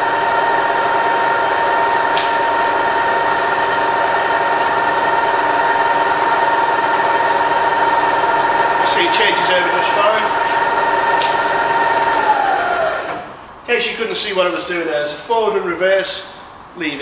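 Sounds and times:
milling machine whine: 0:00.0 - 0:13.4.

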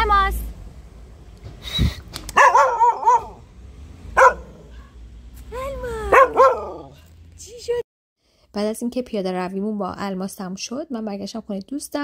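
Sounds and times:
dog barking and yelping: 0:02.3 - 0:03.5, 0:04.1 - 0:05.0, 0:06.1 - 0:07.1.

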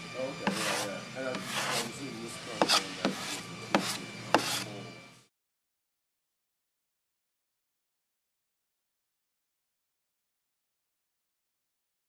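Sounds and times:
putty knife scraping hull: 0:00.4 - 0:04.8.

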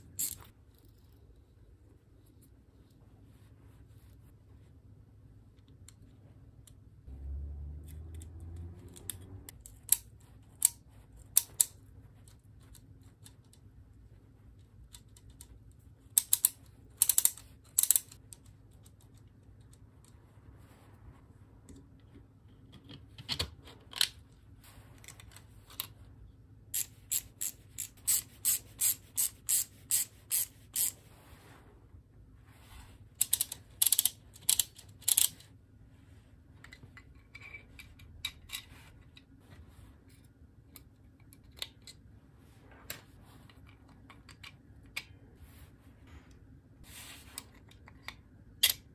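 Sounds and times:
plastic ratchet clicking: 0:00.2 - 0:00.5, 0:16.2 - 0:18.2, 0:26.8 - 0:31.0, 0:33.2 - 0:35.4.

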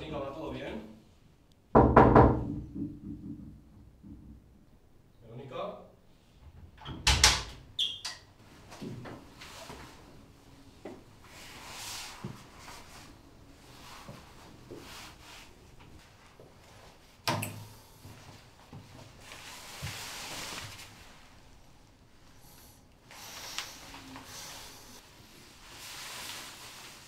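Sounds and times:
glass shower door knocking: 0:01.8 - 0:04.4.

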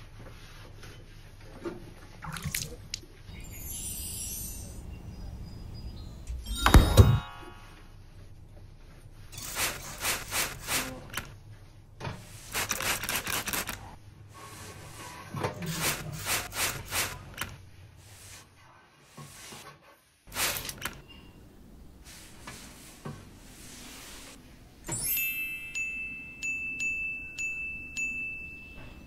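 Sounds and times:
spray bottle hissing: 0:09.4 - 0:10.9, 0:12.4 - 0:13.8, 0:20.3 - 0:21.0.

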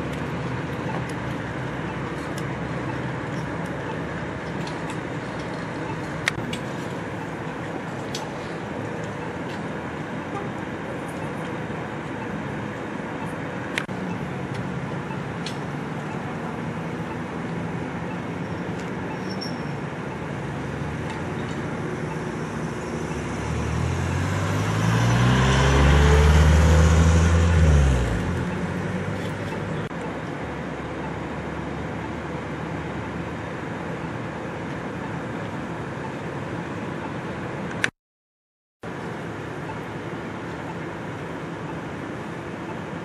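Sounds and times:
street traffic noise: 0:00.0 - 0:37.9, 0:38.8 - 0:43.0
vehicle driving past close by: 0:23.0 - 0:29.2.

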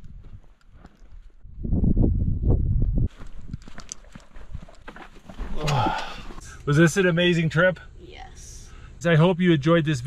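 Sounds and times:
wind buffeting microphone: 0:00.0 - 0:04.8.

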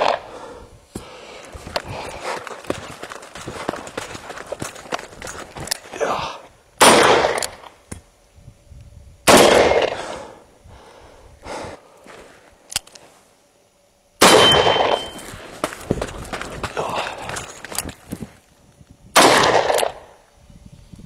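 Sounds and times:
footsteps on gravel: 0:01.0 - 0:06.3, 0:14.6 - 0:18.4
revolver gunshots: 0:06.8 - 0:07.5, 0:09.3 - 0:10.0, 0:14.2 - 0:15.1, 0:19.2 - 0:20.1.

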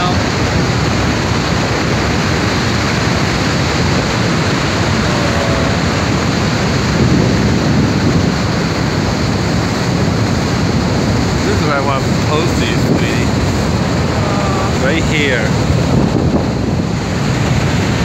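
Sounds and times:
roar of rushing water: 0:00.0 - 0:18.0.

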